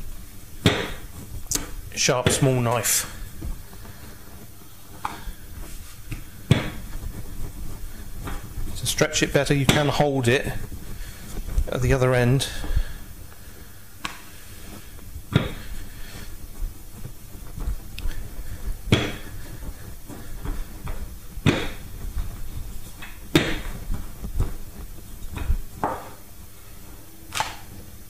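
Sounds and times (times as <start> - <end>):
rolling pin rumbling on dough: 0.0 - 28.0
rolling pin knocking on worktop: 0.6 - 1.0, 21.4 - 21.8, 23.3 - 23.7, 25.8 - 26.2.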